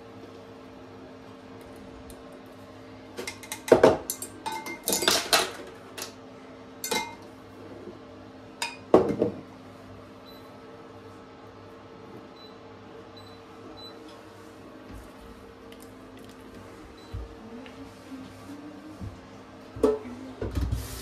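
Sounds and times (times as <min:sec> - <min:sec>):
glassware clinking on worktop: 0:06.8 - 0:07.2.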